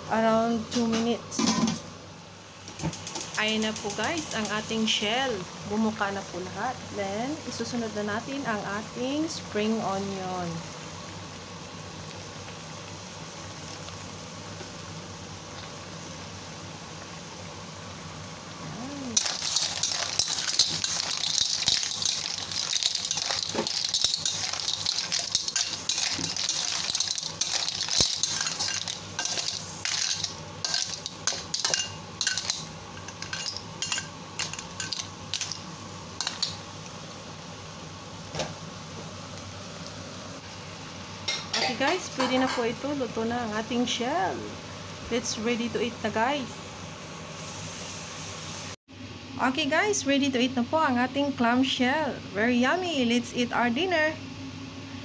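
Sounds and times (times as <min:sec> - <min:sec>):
clams sizzling in a wok: 0:00.1 - 0:48.8
shells clinking and scraping: 0:19.2 - 0:35.6.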